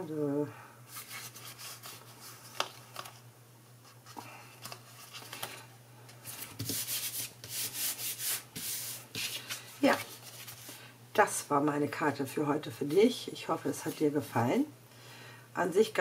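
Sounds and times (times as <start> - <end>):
hands rubbing paper: 0.9 - 2.7, 6.3 - 10.8.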